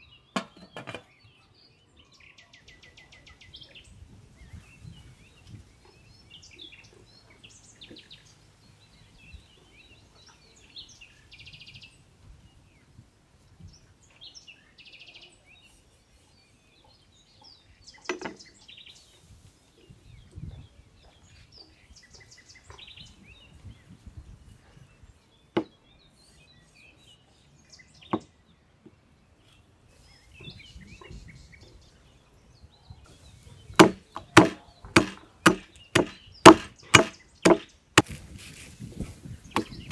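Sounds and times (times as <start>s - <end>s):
small birds chirping: 0.0s - 39.9s
knocks on wooden chopping block: 33.8s - 37.7s
cleaver chopping stalks: 33.8s - 38.6s, 39.5s - 39.9s.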